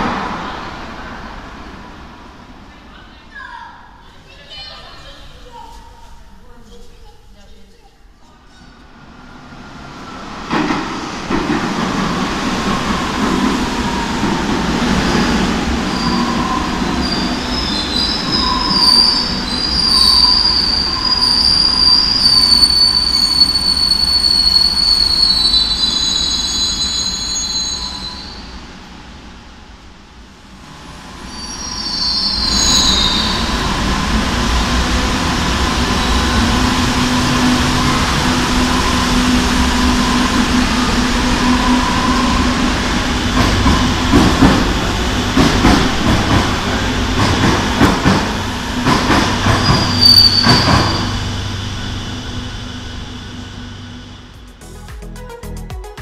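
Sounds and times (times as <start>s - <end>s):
train electric hum: 0.0s - 55.2s
train braking: 8.4s - 28.9s, 30.7s - 54.5s
train wheels squealing: 15.8s - 28.6s, 31.2s - 33.7s, 37.2s - 42.6s, 49.0s - 53.8s.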